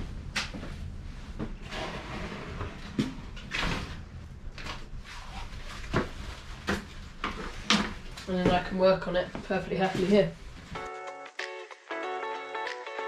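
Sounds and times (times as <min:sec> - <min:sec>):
steady low hum: 0:00.0 - 0:10.8
knocks and clacks of bike handling: 0:05.7 - 0:10.2.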